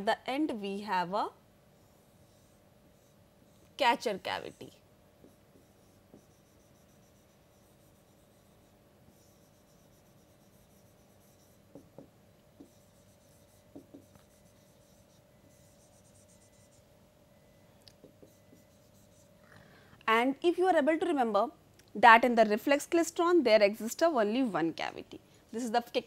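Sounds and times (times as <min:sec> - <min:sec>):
low steady hum: 0:00.0 - 0:26.0
pen scratching on paper: 0:01.8 - 0:16.8, 0:18.1 - 0:19.3.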